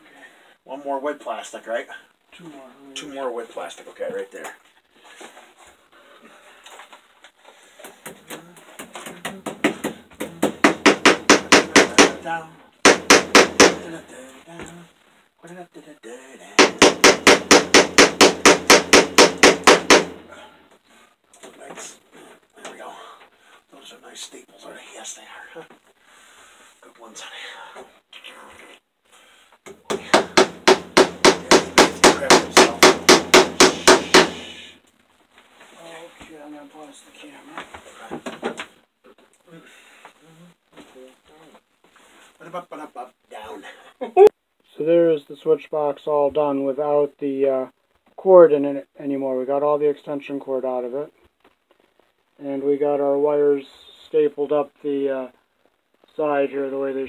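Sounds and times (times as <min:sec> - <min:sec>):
hammer tapping staples into wood: 0:09.4 - 0:12.2, 0:12.9 - 0:13.8, 0:16.6 - 0:20.2, 0:29.7 - 0:34.4
hard hammer blows: 0:09.4 - 0:12.2, 0:12.8 - 0:13.9, 0:16.6 - 0:20.3, 0:29.9 - 0:34.7.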